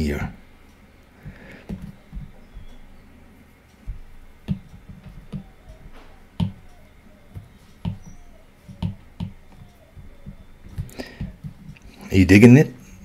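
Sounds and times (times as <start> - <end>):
stylus tapping on glass screen: 3.9 - 11.8.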